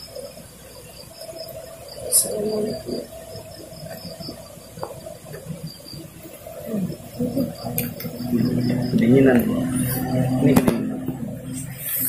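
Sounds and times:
insects chirping: 0:00.0 - 0:12.0.

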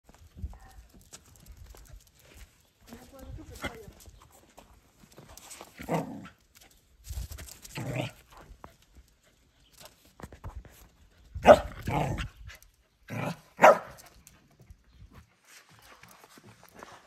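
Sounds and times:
puppy barking: 0:11.4 - 0:12.1, 0:13.2 - 0:14.0.

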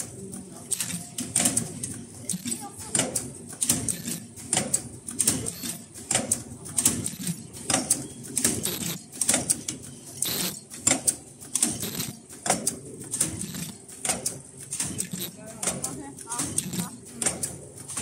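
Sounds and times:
machine clicks and hissing strokes: 0:00.6 - 0:18.0.

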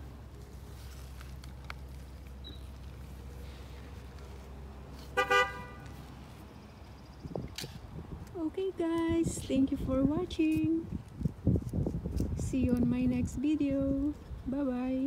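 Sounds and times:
vehicle horn toot: 0:05.1 - 0:06.0.

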